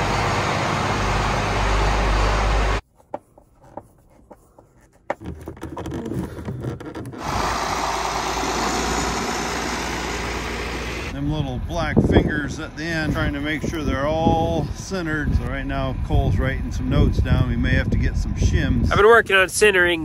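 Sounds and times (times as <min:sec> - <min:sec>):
tractor diesel engine running: 0:00.0 - 0:02.8, 0:07.1 - 0:18.4
tractor engine and wind rush: 0:00.0 - 0:02.8, 0:05.3 - 0:20.0.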